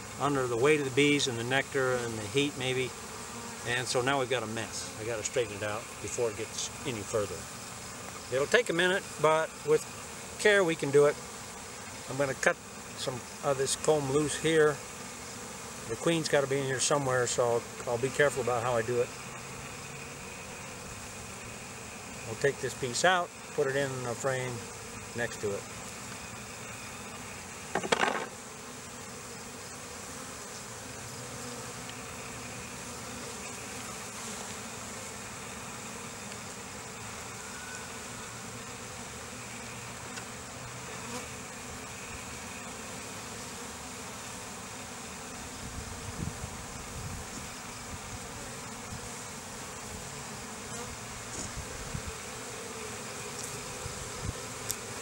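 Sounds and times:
honeybees buzzing: 0:00.0 - 0:55.0
knocks on hive: 0:27.7 - 0:28.4.

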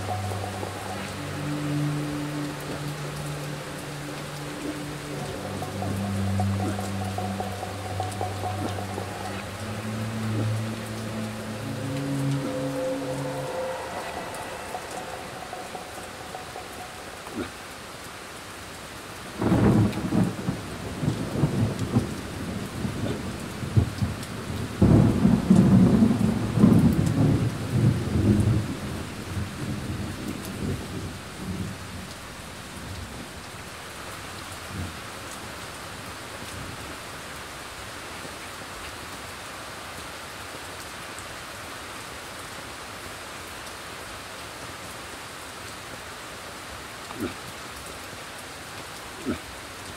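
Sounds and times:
rain hiss: 0:00.0 - 0:49.9
thunder rumbling: 0:19.4 - 0:32.1.

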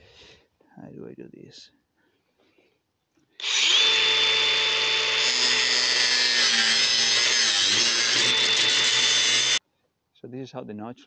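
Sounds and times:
angle grinder cutting metal pipe: 0:03.4 - 0:09.6.

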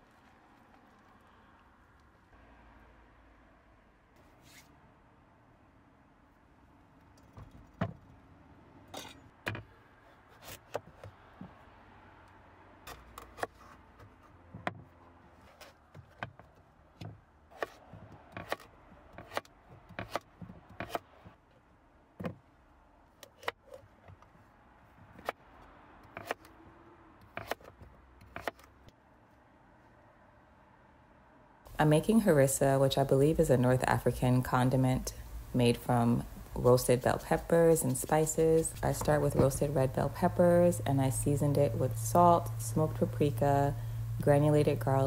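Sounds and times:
knife cutting on wooden board: 0:17.6 - 0:21.0, 0:27.3 - 0:28.7.

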